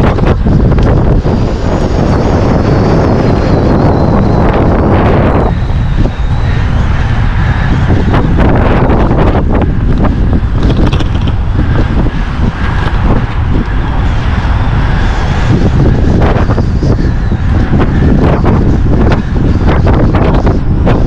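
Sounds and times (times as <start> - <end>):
wind buffeting microphone: 0.0 - 21.0
knocks and rattles from road: 10.5 - 11.8.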